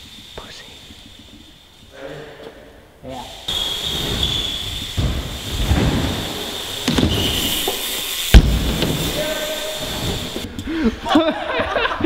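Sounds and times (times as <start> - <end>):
bike rolling on hard floor: 0.0 - 2.0, 3.5 - 10.7
bike banging on wooden ramp: 3.6 - 10.4.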